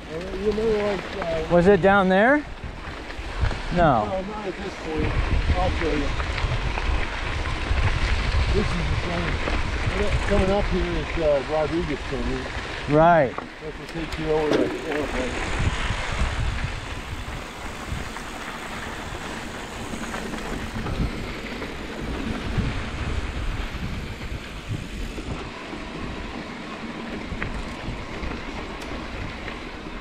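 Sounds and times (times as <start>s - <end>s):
bike tyres crunching over dirt: 0.0s - 30.0s
wind on microphone: 2.6s - 12.4s, 13.9s - 26.3s
low rumble: 3.5s - 25.5s.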